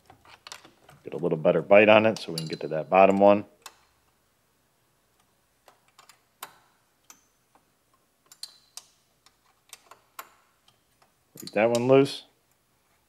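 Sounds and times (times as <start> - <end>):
wrench clicking on metal: 8.3 - 10.8.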